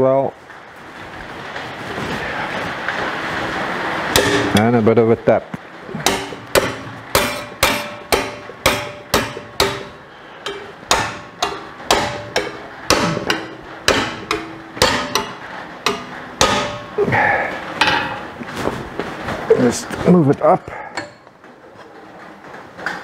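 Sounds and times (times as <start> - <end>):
hammer striking steel plate: 4.1 - 4.7, 6.0 - 18.4.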